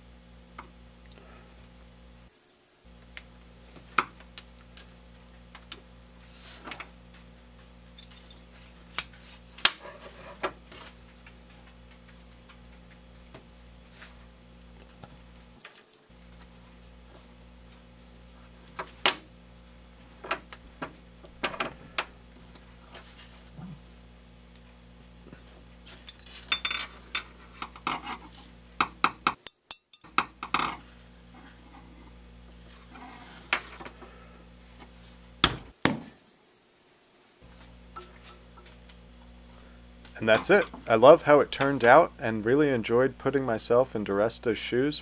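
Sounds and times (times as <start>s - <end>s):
steady low hum: 0.0s - 35.8s, 37.4s - 45.0s
metal parts clicking and clinking: 8.0s - 8.5s, 25.9s - 26.9s, 29.4s - 30.7s.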